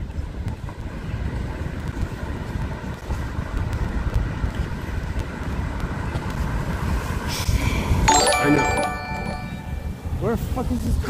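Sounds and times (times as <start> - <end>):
wind rumbling on microphone: 0.0 - 8.1.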